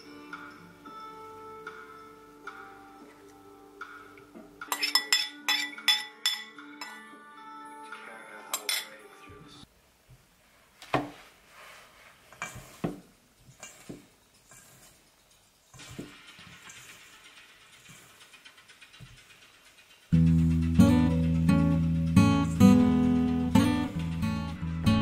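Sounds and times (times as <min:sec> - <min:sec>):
background music: 0:00.0 - 0:09.7, 0:15.8 - 0:25.0
kitchen bowls clinking: 0:04.6 - 0:07.0
hands rubbing butter into flour: 0:10.4 - 0:16.0.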